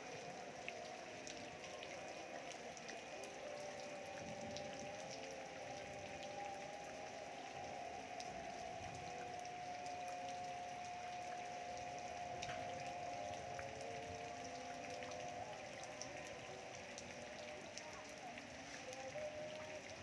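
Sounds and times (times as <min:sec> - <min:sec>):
rain drop ticks: 0:00.0 - 0:20.0
rain falling: 0:00.0 - 0:20.0.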